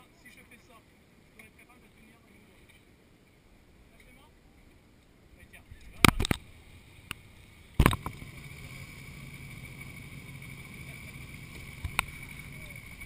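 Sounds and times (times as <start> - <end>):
motorcycle engines idling: 5.4 - 13.0.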